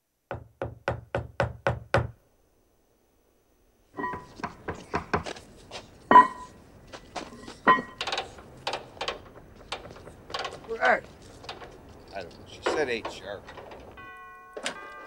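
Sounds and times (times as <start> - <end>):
short ringing tone: 4.0 - 4.3, 14.0 - 15.0
clicks and knocks: 7.6 - 10.7, 11.3 - 15.0.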